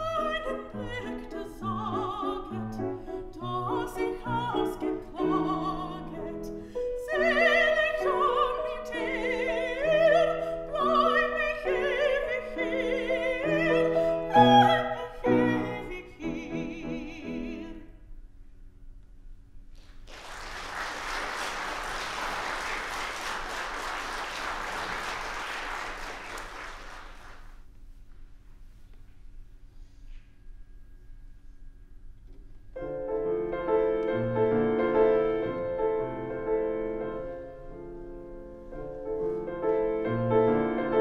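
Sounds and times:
grand piano accompaniment: 0:00.0 - 0:17.8, 0:32.4 - 0:41.0
soprano singing: 0:00.0 - 0:18.0
audience applauding: 0:19.8 - 0:27.6.

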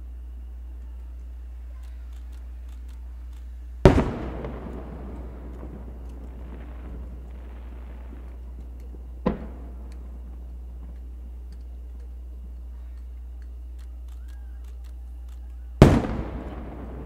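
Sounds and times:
faint clicks: 0:00.7 - 0:03.5, 0:10.9 - 0:15.6
firework boom with rumbling echo: 0:03.8 - 0:11.3, 0:15.8 - 0:17.0.

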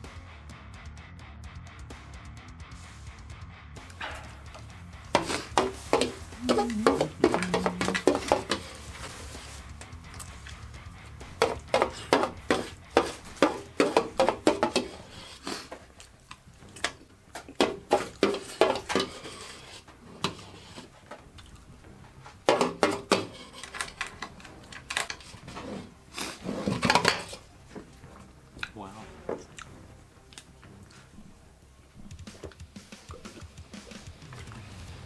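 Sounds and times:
utensil scraping metal bowl: 0:05.1 - 0:09.5, 0:22.5 - 0:27.4.

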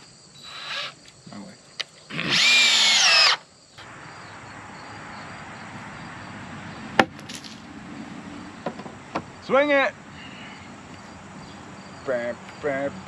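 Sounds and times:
insects hissing: 0:00.0 - 0:13.0
sharp wooden knock: 0:07.0 - 0:07.4, 0:08.6 - 0:09.3.

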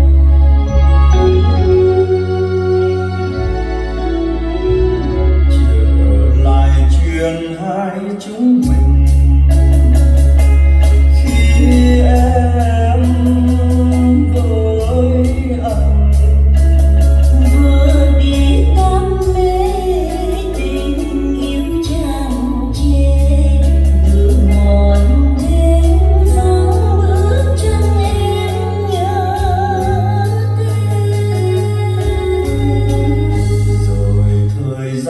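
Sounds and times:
song with deep bass over speakers: 0:00.0 - 0:35.0.

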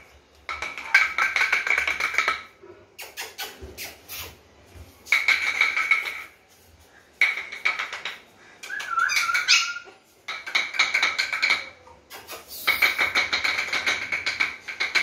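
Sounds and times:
puppy whining: 0:08.7 - 0:10.0
puppies yipping: 0:08.7 - 0:10.1.

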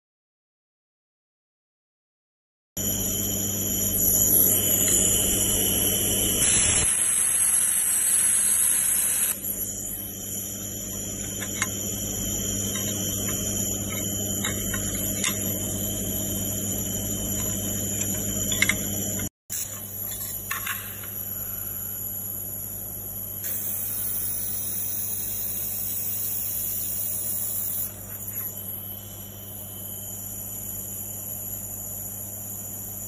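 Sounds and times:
electrical machine hum: 0:02.8 - 0:33.0
high-pitched whine: 0:02.8 - 0:33.0.

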